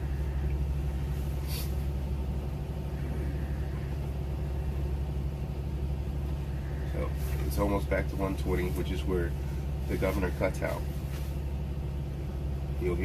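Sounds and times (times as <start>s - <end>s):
air compressor running: 0.0s - 13.0s
bus engine idling: 0.0s - 13.0s
short air hiss: 1.3s - 1.9s.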